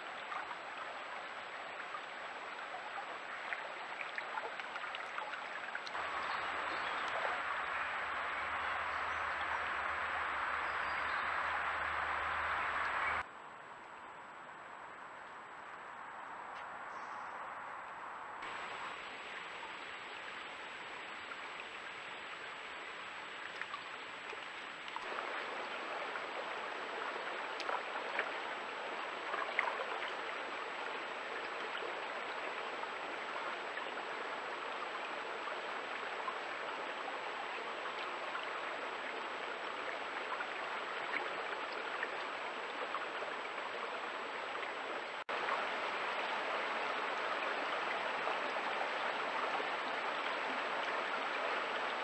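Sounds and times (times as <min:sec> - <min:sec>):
stream running over rocks: 0:00.0 - 0:13.3, 0:18.4 - 0:52.0
faint high whine: 0:06.0 - 0:13.2.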